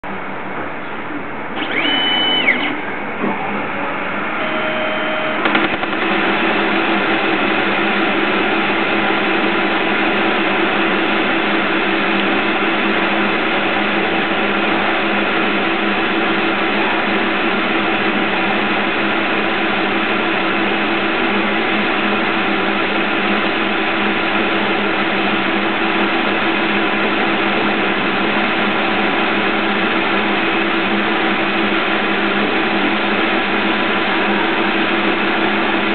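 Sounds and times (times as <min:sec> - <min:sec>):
lathe axis drive whine: 0:00.0 - 0:35.9
lathe cutting steel: 0:01.6 - 0:20.2.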